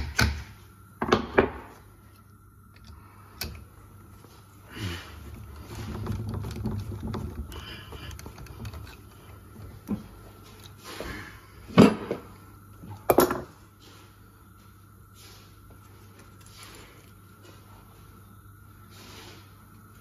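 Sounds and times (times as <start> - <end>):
rolling tool scraping rumble: 5.1 - 10.2.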